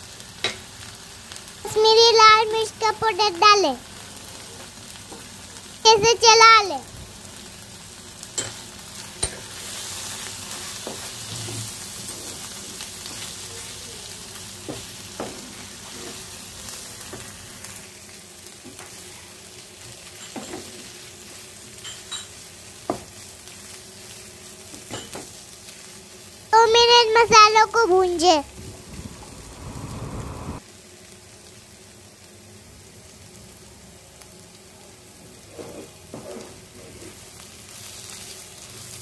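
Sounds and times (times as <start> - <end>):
onions sizzling in hot oil: 0.0 - 39.0.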